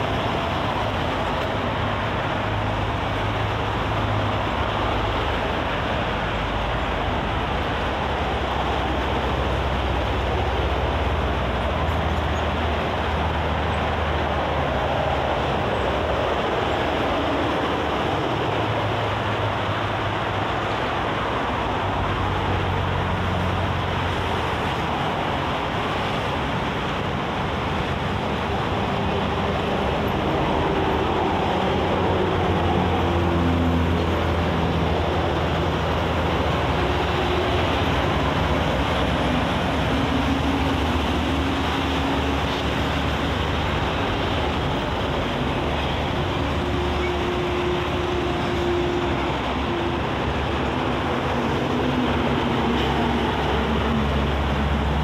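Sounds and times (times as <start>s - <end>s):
expressway traffic: 0.0s - 55.0s
heavy vehicle engine drone: 0.0s - 55.0s.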